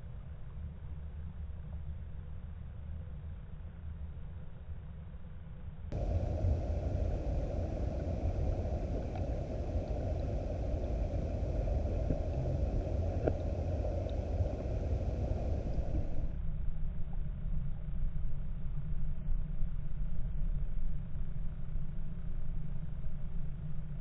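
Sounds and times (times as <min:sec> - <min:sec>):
underwater river current rumble: 0:05.9 - 0:23.8
faint clicks: 0:07.9 - 0:10.8, 0:11.8 - 0:16.3.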